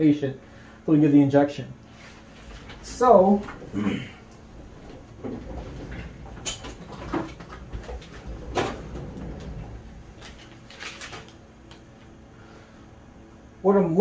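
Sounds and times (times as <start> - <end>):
plastic sleeve crinkling: 10.2 - 11.8.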